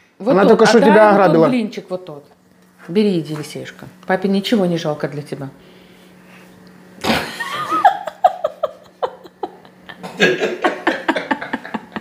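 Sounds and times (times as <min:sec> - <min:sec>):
people laughing: 0:07.1 - 0:12.0.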